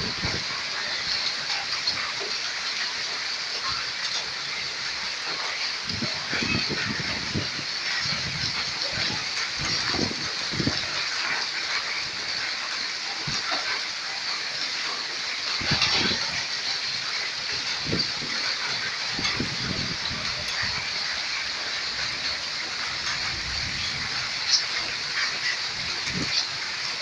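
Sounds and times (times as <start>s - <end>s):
wind buffeting microphone: 0.0s - 0.6s, 5.8s - 11.4s, 15.6s - 16.4s, 17.5s - 26.6s
heavy rain pouring: 0.0s - 27.0s.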